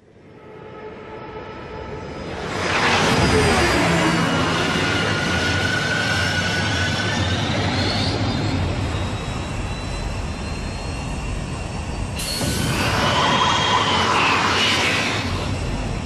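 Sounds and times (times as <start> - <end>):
thin whining tones: 0.4 - 16.0
jet-like rush: 2.0 - 7.3, 12.2 - 16.0.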